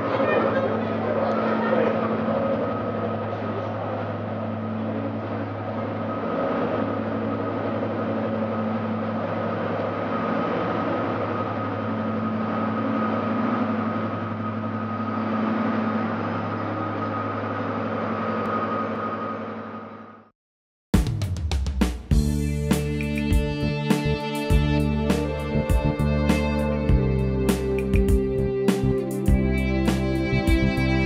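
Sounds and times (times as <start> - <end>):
diesel locomotive engine drone: 0.0 - 20.3, 22.1 - 31.0.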